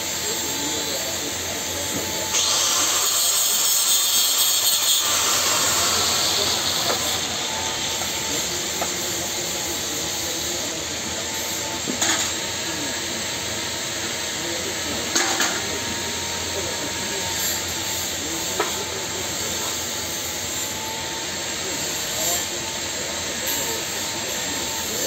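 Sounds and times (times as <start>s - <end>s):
angle grinder grinding pipe: 0.1s - 12.4s.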